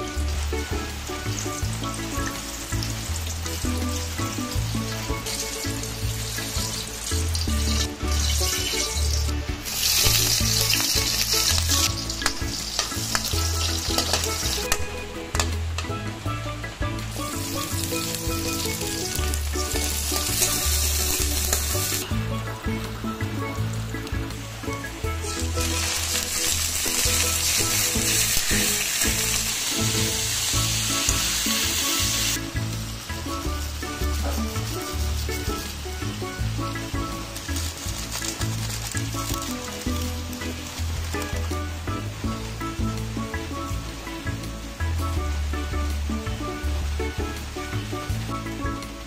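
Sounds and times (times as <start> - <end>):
background music with bass line: 0.0 - 49.0
oil sizzling in a wok: 0.0 - 49.0
ladle stirring in wok: 4.8 - 15.5
utensil clicking against pan: 9.9 - 15.9.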